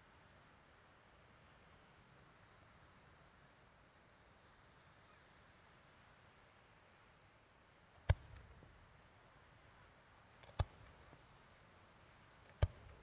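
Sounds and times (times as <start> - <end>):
faint steady hiss: 0.0 - 13.0
distant firework bangs: 8.1 - 8.6.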